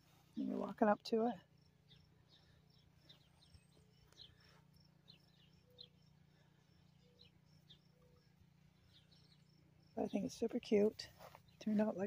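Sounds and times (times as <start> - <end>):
distant birds chirping: 0.0 - 12.0
faint high chirp: 1.8 - 9.7.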